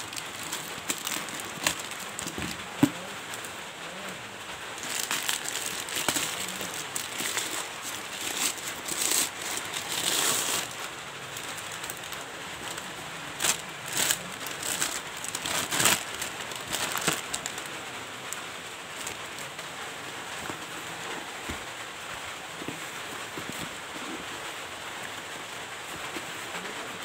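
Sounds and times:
plastic mailer bag crinkling: 0:00.0 - 0:19.6
sharp plastic crackles: 0:00.0 - 0:27.0.

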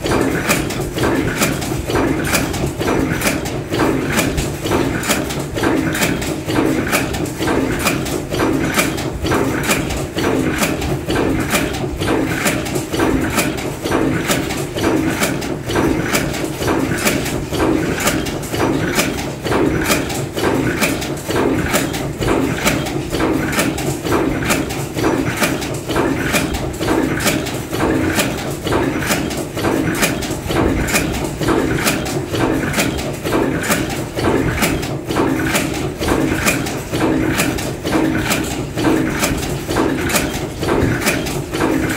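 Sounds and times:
forging machine knocking: 0:00.0 - 0:41.9
steady mechanical hum: 0:00.0 - 0:41.9.

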